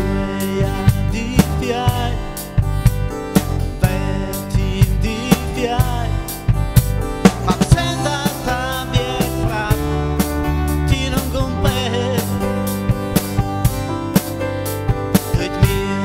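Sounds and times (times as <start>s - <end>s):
drum hits: 0.0s - 16.0s
live band playing: 0.0s - 16.0s.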